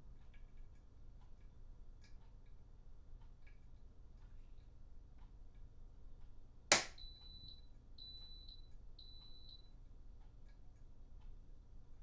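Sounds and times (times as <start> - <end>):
high beeps: 7.0 - 9.7.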